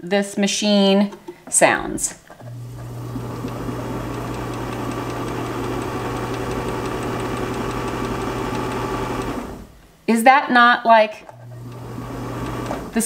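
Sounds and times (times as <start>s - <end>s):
sewing machine running: 2.4s - 9.8s, 11.3s - 13.0s.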